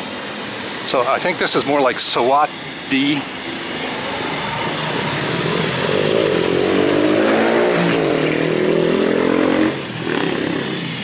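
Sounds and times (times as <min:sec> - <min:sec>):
town traffic: 0:00.0 - 0:11.0
motor scooter passing: 0:02.6 - 0:11.0.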